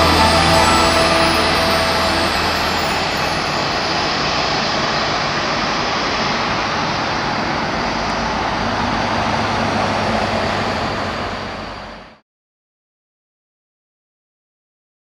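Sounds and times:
jet engines roaring: 0.0 - 12.0.

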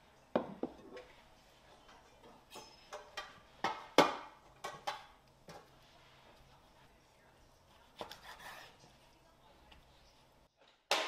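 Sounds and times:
dishes knocking and clinking: 0.3 - 1.2, 1.9 - 5.7.

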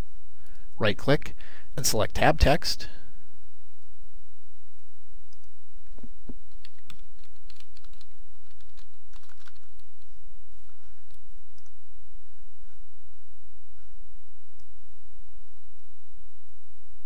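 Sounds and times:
steady low hum: 0.0 - 17.0
computer keyboard typing: 6.5 - 10.1.

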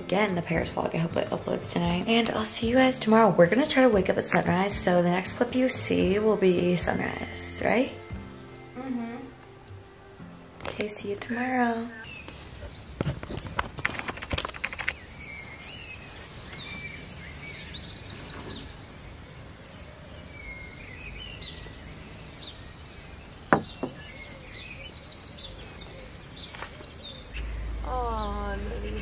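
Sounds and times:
birds chirping and singing: 14.4 - 29.0
sharp knock: 23.5 - 24.0.

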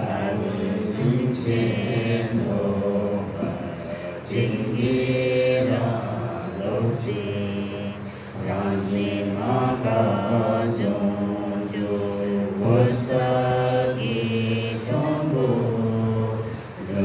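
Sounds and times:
mantra chanting in long notes: 0.0 - 17.0.

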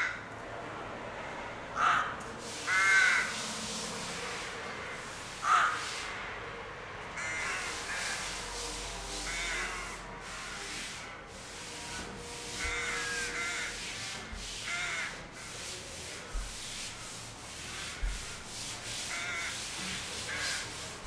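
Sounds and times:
rooks cawing: 0.0 - 0.3, 1.8 - 3.5, 5.4 - 6.0, 7.2 - 8.2, 9.2 - 10.1, 12.6 - 13.8, 14.6 - 15.2, 19.1 - 19.6, 20.3 - 20.7
steady background hiss: 2.3 - 21.0.

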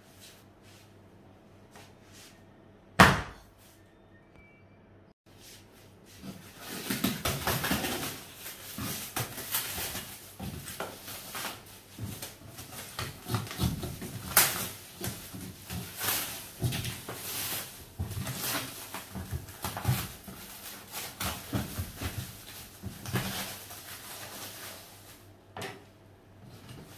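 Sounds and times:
plastic wrap crackling and tearing: 6.6 - 25.2.

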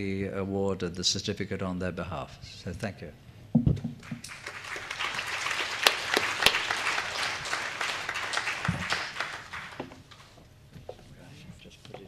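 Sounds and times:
audience applauding: 4.0 - 10.1.

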